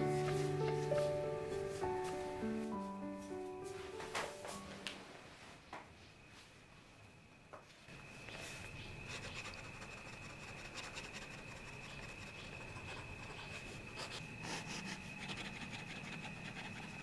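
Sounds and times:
pen scratching on paper: 0:09.1 - 0:17.0.

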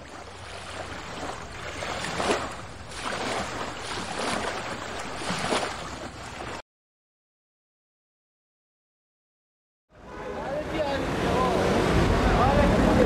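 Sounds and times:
sea surf rushing: 0:00.0 - 0:06.6, 0:10.1 - 0:13.0.

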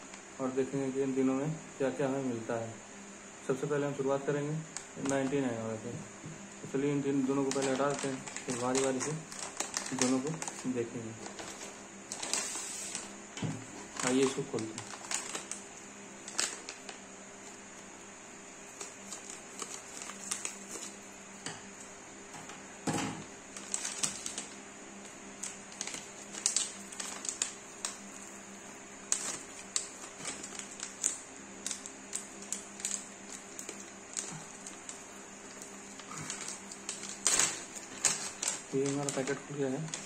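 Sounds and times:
faint steady hum: 0:00.0 - 0:40.0
plastic packet crinkling: 0:04.6 - 0:05.5, 0:07.1 - 0:17.6, 0:18.6 - 0:21.6, 0:23.4 - 0:40.0.

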